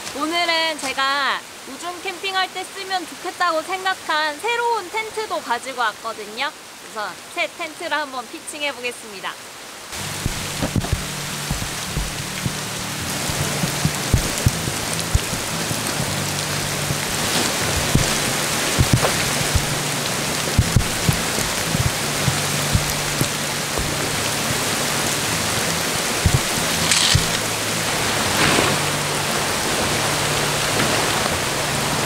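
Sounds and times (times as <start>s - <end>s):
rain falling on gravel: 0.0s - 32.0s
soft background music: 10.0s - 32.0s
sharp taps of drops: 10.2s - 12.6s, 13.2s - 16.2s, 16.8s - 19.8s, 20.5s - 24.6s, 26.2s - 27.4s.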